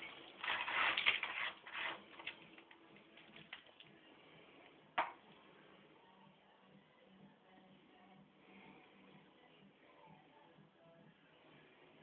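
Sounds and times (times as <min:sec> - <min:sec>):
limescale flakes crunching and rustling: 0:00.0 - 0:03.9.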